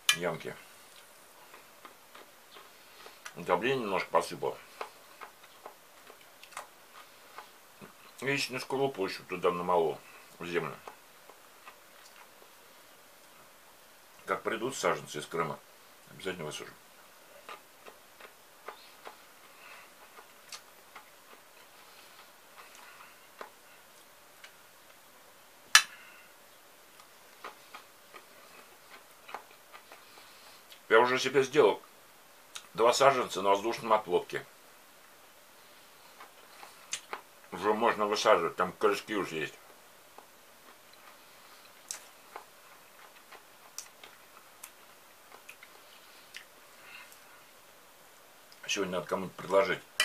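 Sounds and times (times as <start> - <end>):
person chewing crunchy food: 0.9 - 3.4, 4.6 - 8.2, 10.3 - 12.5, 17.3 - 24.6, 26.9 - 30.9, 39.7 - 47.3.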